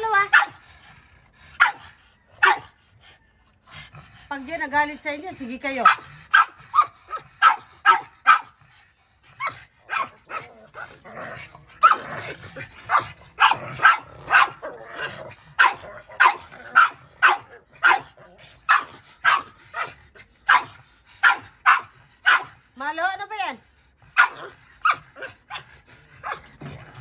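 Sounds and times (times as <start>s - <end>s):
small dogs yapping: 0.0s - 0.6s, 1.5s - 2.7s, 5.8s - 8.6s, 9.3s - 22.6s, 24.1s - 27.0s.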